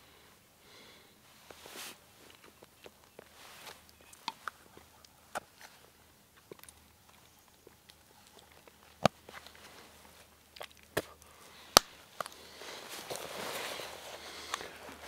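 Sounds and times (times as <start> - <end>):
clothing rustling: 1.2 - 4.6, 8.9 - 10.3, 11.4 - 15.0.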